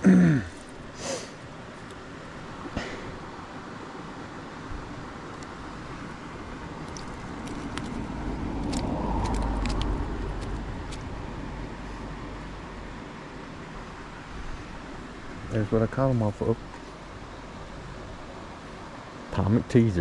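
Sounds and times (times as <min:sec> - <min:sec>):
creek water rushing: 0:00.0 - 0:20.0
road vehicle passing: 0:05.0 - 0:15.8.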